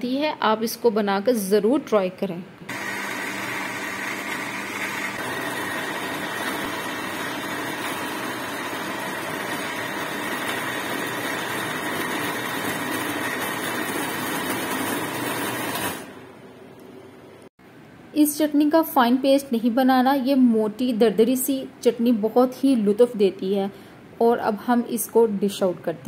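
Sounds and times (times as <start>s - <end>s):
blender chopping food: 2.7s - 16.2s.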